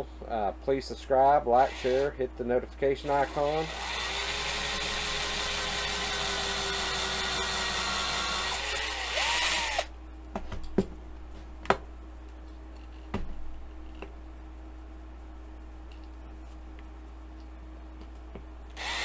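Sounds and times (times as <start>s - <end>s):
small electric drill running: 1.6s - 2.1s, 3.2s - 9.9s, 18.8s - 19.0s.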